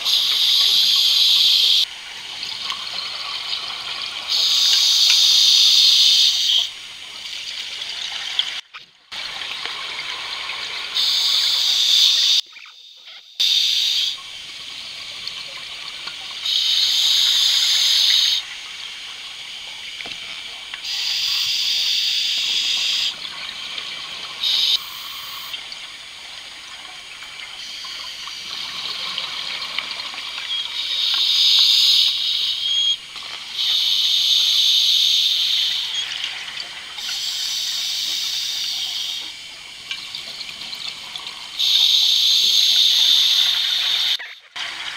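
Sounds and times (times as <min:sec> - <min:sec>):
scuba regulator hissing and bubbling: 0:00.0 - 0:01.9, 0:04.3 - 0:06.7, 0:16.4 - 0:18.5, 0:20.8 - 0:23.3, 0:24.1 - 0:25.6, 0:27.6 - 0:32.9, 0:33.6 - 0:39.5, 0:41.6 - 0:44.2.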